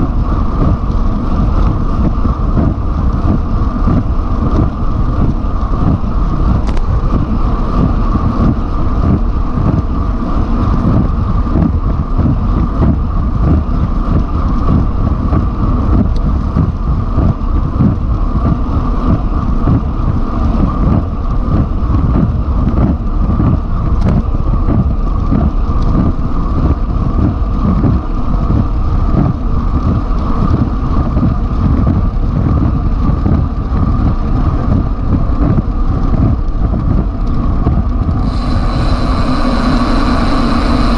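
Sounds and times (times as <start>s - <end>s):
tyres rumbling on road: 0.0s - 40.9s
wind buffeting microphone: 0.0s - 40.9s.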